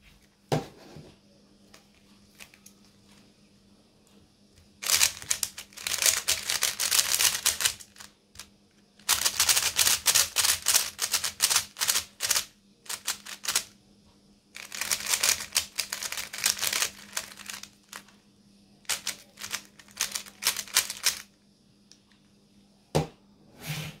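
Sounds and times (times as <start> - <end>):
speed cube clicking: 4.8 - 13.7, 14.6 - 18.0, 18.9 - 21.3.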